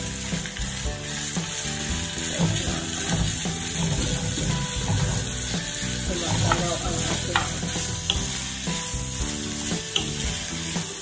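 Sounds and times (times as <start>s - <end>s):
background music: 0.0s - 11.0s
meat and onions sizzling in pan: 0.0s - 11.0s
spatula pushing meat: 0.0s - 11.0s.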